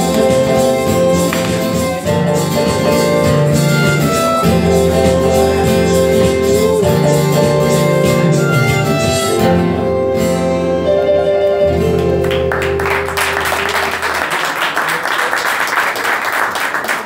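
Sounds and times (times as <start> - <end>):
violin guitar and keyboard playing: 0.0 - 14.0
audience applause: 12.0 - 17.0.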